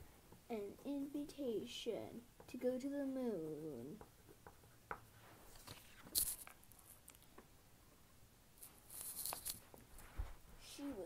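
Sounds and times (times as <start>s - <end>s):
paper rustling and crinkling: 5.4s - 7.2s, 8.6s - 10.2s.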